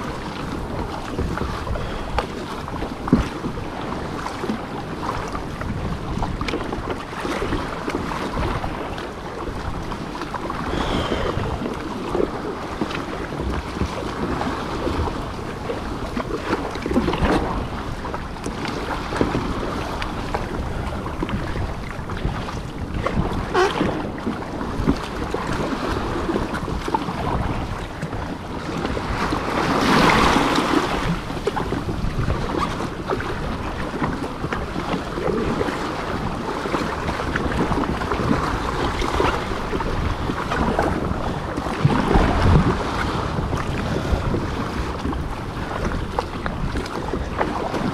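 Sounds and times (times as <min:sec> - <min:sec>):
water splashing against kayak hull: 0:00.0 - 0:47.9
wind buffeting microphone: 0:00.0 - 0:47.9.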